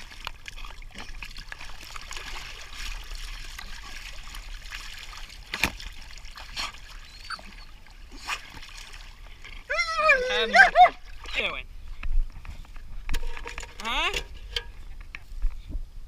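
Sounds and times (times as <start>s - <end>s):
dogs splashing in pool water: 0.0s - 11.2s.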